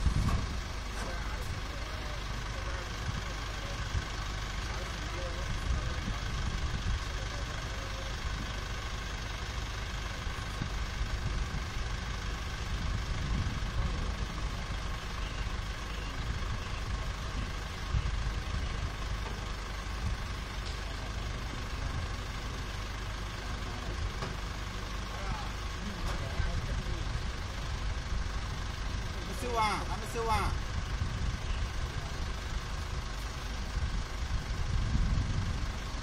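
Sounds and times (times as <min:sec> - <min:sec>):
truck engine idling: 0:00.0 - 0:36.0.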